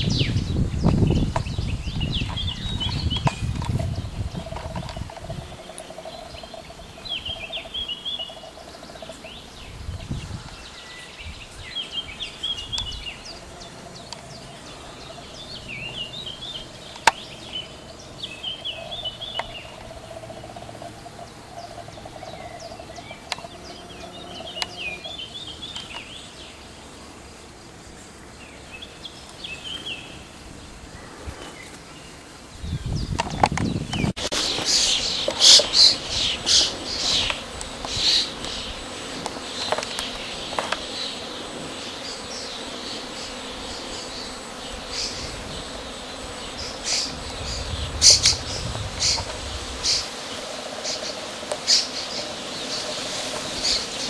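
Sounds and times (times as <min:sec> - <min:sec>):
songbird twittering: 0:00.0 - 0:26.7
steady hum: 0:34.2 - 0:54.0.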